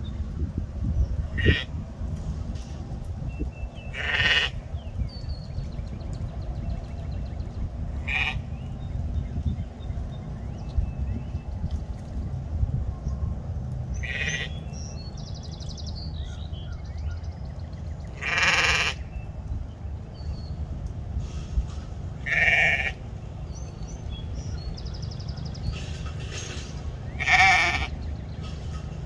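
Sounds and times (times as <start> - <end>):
sheep bleating: 4.0 - 4.5, 14.0 - 14.5, 18.2 - 19.0, 22.2 - 23.0, 27.2 - 27.9.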